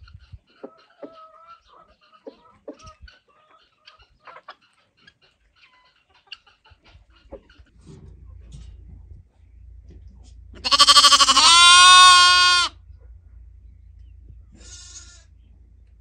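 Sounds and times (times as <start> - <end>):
goat bleating: 10.6 - 12.8, 14.5 - 15.3.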